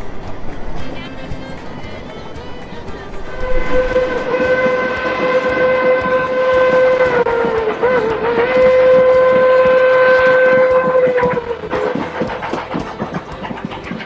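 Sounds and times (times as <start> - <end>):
steam locomotive whistle: 3.2 - 14.0.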